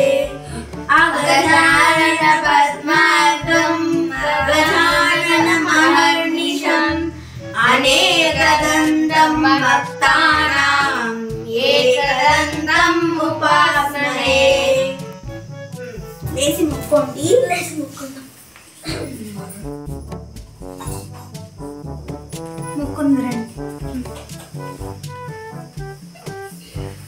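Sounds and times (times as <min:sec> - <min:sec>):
instrumental backing with stepping bass: 0:00.0 - 0:06.1, 0:07.5 - 0:17.6, 0:18.9 - 0:27.0
high voice singing devotional song: 0:00.0 - 0:15.1.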